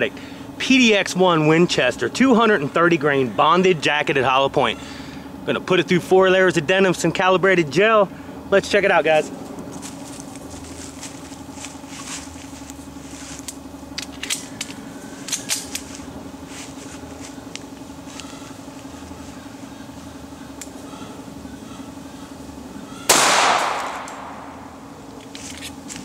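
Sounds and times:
steady low hum: 0:00.0 - 0:26.0
pistol shot with echo: 0:23.1 - 0:24.6.

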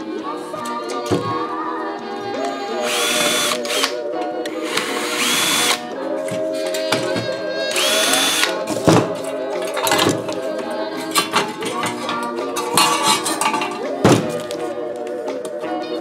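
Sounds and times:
background music: 0:00.0 - 0:16.0
power drill whine: 0:02.9 - 0:03.9, 0:04.6 - 0:05.8, 0:07.7 - 0:08.5.

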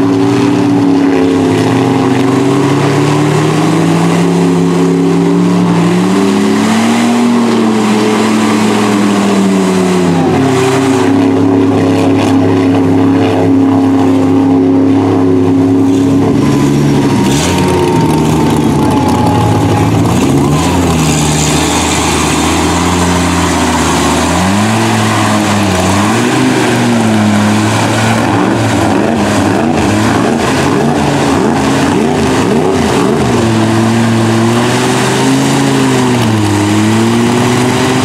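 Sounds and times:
truck engine straining: 0:00.0 - 0:38.0.

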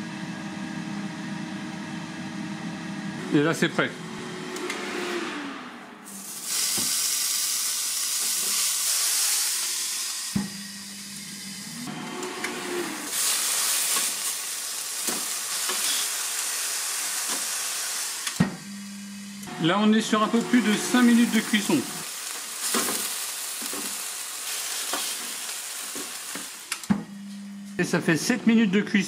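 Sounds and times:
electric grill low hum: 0:00.0 - 0:29.0
patties sizzling on a grill: 0:06.1 - 0:11.6, 0:12.9 - 0:26.8.

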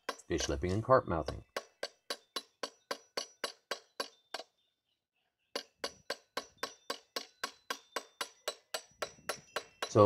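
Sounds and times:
hammer striking steel on anvil: 0:05.6 - 0:10.0.

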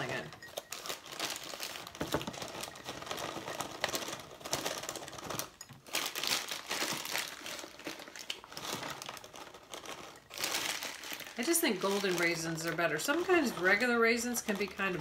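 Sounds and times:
plastic liner crinkling: 0:00.0 - 0:15.0
raisins pouring into glass jar: 0:00.0 - 0:15.0.

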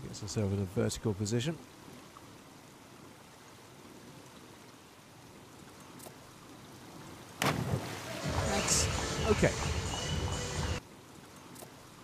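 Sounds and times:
pool water hiss: 0:00.0 - 0:12.0
loud splash of diver: 0:07.4 - 0:08.5.

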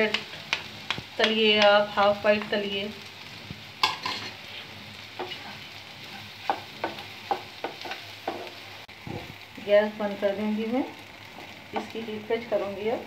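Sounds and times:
faint sizzle: 0:00.0 - 0:13.0
spatula scraping pan: 0:03.8 - 0:08.6.

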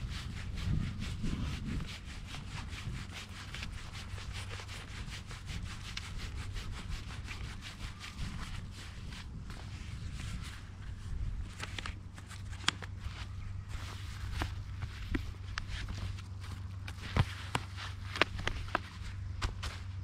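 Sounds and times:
low rumble: 0:00.0 - 0:17.2
foam mat scratchy rubbing: 0:00.0 - 0:20.0.

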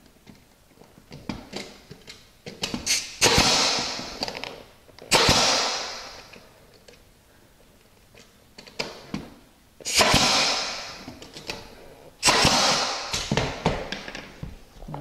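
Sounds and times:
nail gun bang and hiss: 0:02.6 - 0:04.5, 0:05.1 - 0:06.4, 0:09.8 - 0:11.6, 0:12.2 - 0:14.1.

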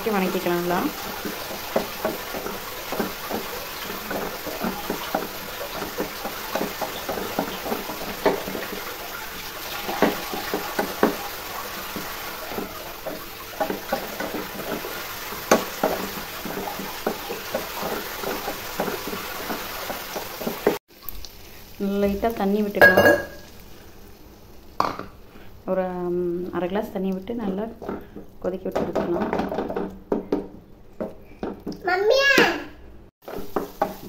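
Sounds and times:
masala sizzling in oil: 0:00.0 - 0:32.0, 0:33.2 - 0:34.0
spatula scraping a pan: 0:00.9 - 0:20.8, 0:27.6 - 0:31.7.

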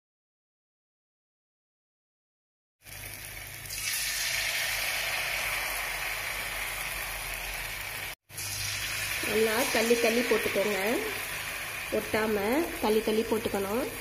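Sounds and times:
hot oil sizzling: 0:02.8 - 0:14.0.

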